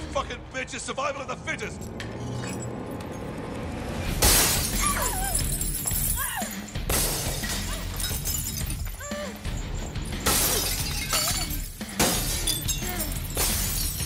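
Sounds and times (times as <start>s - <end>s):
low droning film score: 0.0s - 4.4s
broken glass scattering: 4.2s - 14.0s
glass jars smashing on concrete: 4.2s - 14.0s.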